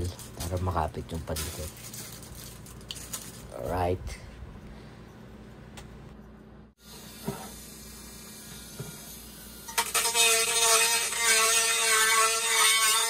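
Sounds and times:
rotary tool grinding metal: 8.7s - 13.0s.

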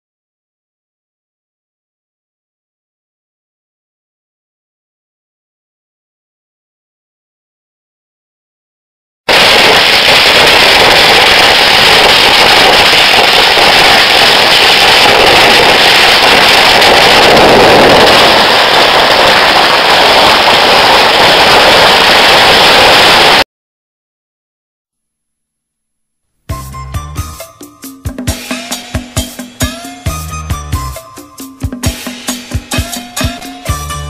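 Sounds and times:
firecrackers banging: 9.3s - 23.4s.

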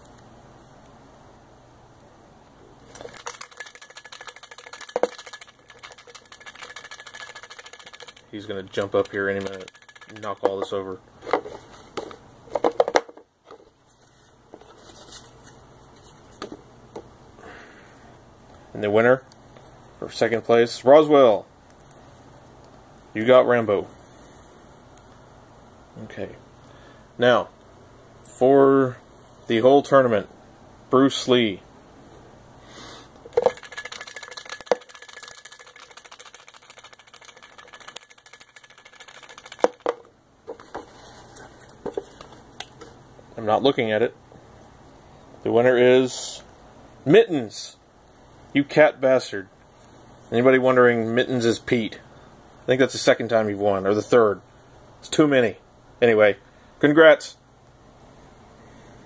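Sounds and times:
paper slips rattling in plastic tub: 2.9s - 10.8s, 33.3s - 40.0s.

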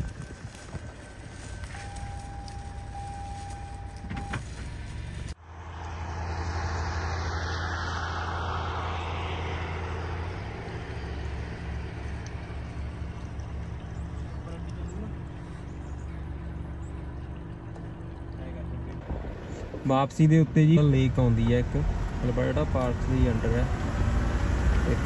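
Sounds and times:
outdoor background: 0.0s - 25.0s
passing vehicle rushing: 1.5s - 13.7s, 19.0s - 25.0s.

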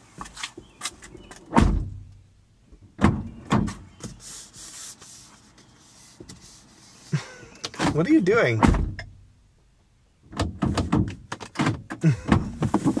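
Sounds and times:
car door thump: 1.5s - 2.1s, 8.6s - 9.2s.

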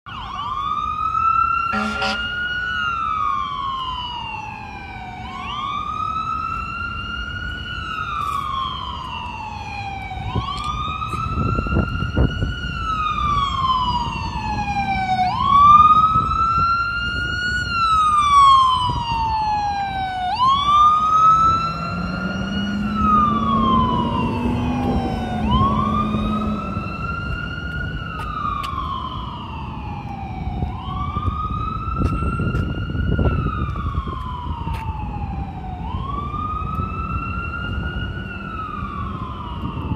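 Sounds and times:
engine and traffic rumble: 0.0s - 39.9s
siren wailing: 0.1s - 39.9s
vehicle horn honk: 1.7s - 2.3s.

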